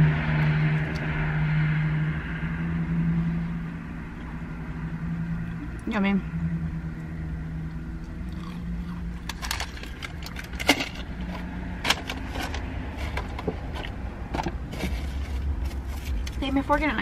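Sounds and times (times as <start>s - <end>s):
low rumble inside car: 0.0s - 17.0s
chewing crunchy food: 8.0s - 10.7s.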